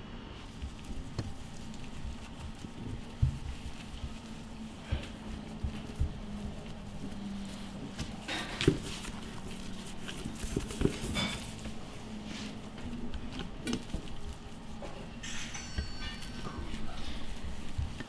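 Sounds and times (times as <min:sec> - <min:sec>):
low steady hum: 0:00.0 - 0:18.0
hands patting sticky rice: 0:00.4 - 0:18.0.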